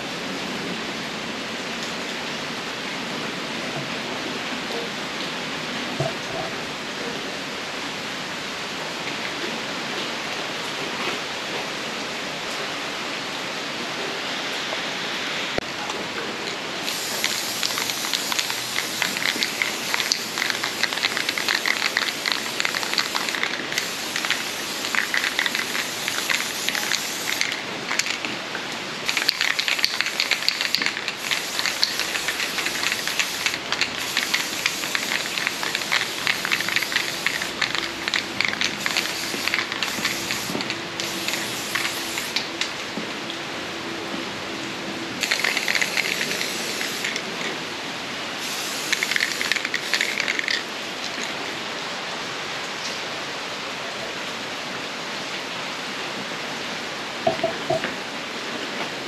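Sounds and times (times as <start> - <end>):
arc welding crackling sizzle: 16.8 - 28.3, 29.0 - 42.8, 45.2 - 47.5, 48.4 - 50.6.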